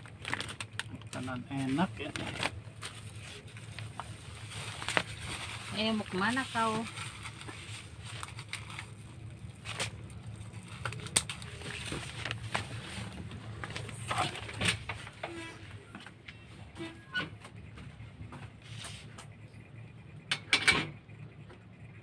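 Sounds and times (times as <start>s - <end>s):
cats crunching dry kibble: 0.0s - 14.6s
low steady hum: 0.0s - 22.0s.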